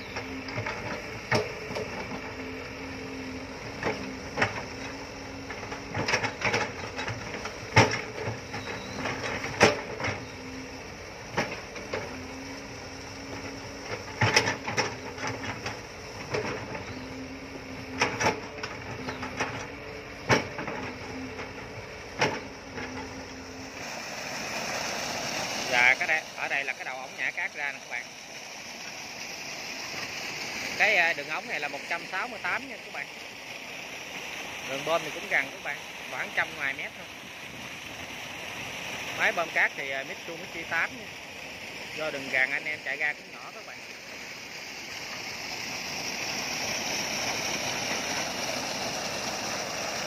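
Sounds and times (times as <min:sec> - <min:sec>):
excavator engine and hydraulic hum: 0:00.0 - 0:50.0
excavator bucket pounding soil: 0:03.6 - 0:10.6, 0:13.2 - 0:23.4.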